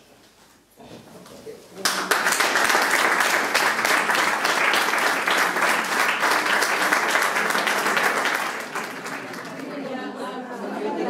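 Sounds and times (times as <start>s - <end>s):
audience applauding: 1.8s - 9.9s.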